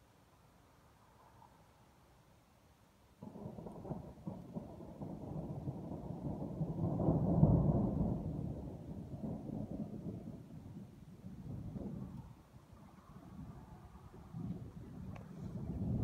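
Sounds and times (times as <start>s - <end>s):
thunder rumbling: 3.2s - 16.0s.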